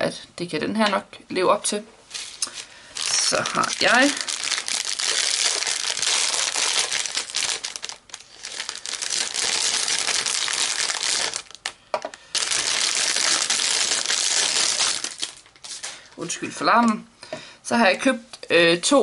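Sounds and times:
plastic bag crinkling: 0:02.1 - 0:16.0.

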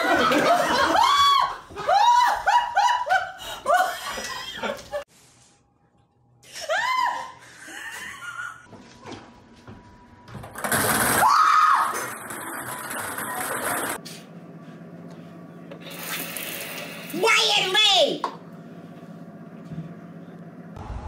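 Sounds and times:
woman laughing hard: 0:00.0 - 0:05.0, 0:06.5 - 0:08.7.

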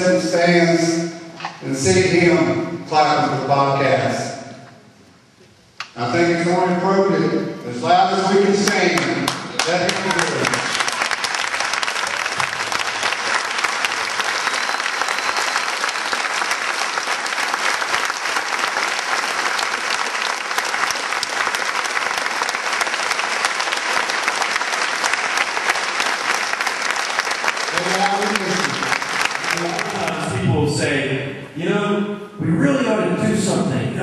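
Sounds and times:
large crowd applauding: 0:08.6 - 0:30.6.

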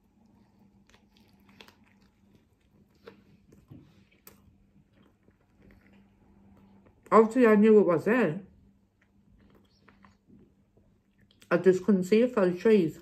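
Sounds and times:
person chewing soft food: 0:00.0 - 0:07.2, 0:08.6 - 0:11.5.

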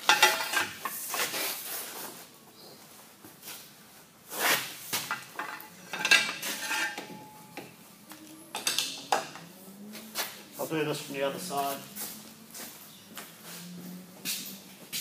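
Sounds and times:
metallic ringing tone: 0:05.7 - 0:09.2.

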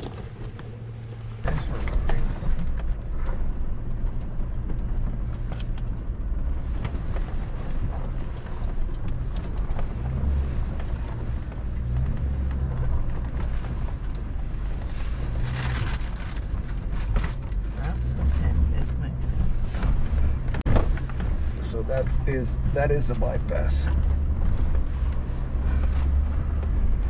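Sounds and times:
off-road vehicle engine rumble: 0:00.0 - 0:27.0
rocks knocking and rattling: 0:01.7 - 0:18.5.

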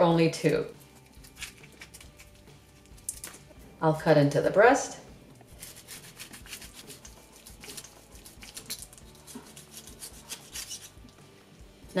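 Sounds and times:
knife cutting crispy chicken skin: 0:01.0 - 0:02.4, 0:05.6 - 0:11.0.

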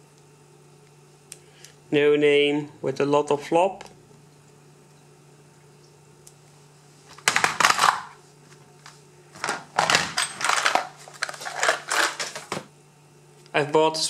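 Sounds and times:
plastic box clattering: 0:07.1 - 0:08.1, 0:09.4 - 0:12.7
metal cylinders clinking in plastic box: 0:09.4 - 0:12.5.

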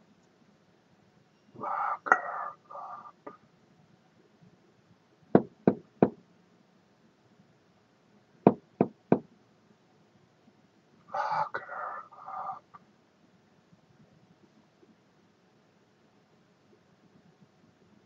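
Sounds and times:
sharp knocks: 0:05.4 - 0:06.2, 0:08.5 - 0:09.3.

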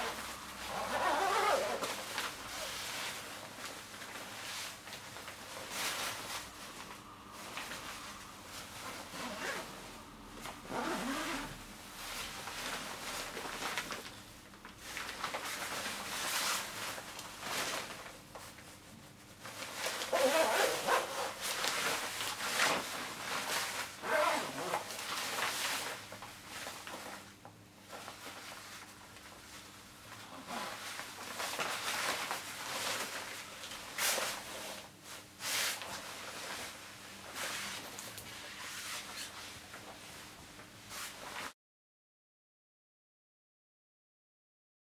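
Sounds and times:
zipper being pulled up: 0:00.0 - 0:03.2, 0:08.9 - 0:09.8, 0:10.4 - 0:11.6, 0:19.9 - 0:22.0, 0:22.6 - 0:25.0, 0:30.2 - 0:31.0
jacket fabric rustling: 0:00.0 - 0:14.1, 0:19.4 - 0:27.3, 0:27.9 - 0:41.5.

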